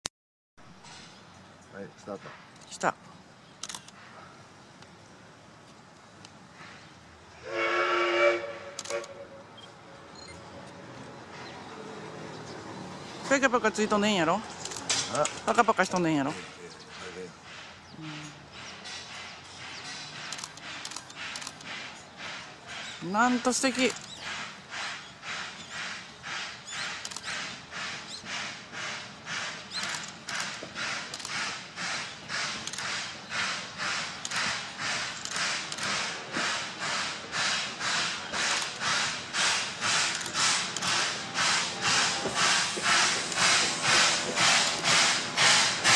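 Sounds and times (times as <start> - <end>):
steam locomotive chuffing: 6.4 - 9.4, 11.0 - 45.9
steam locomotive whistle blast: 7.4 - 9.4.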